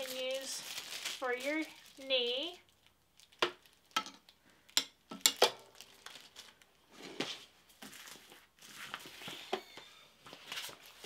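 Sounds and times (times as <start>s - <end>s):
plastic bags crinkling: 0.0s - 4.0s, 4.6s - 6.9s.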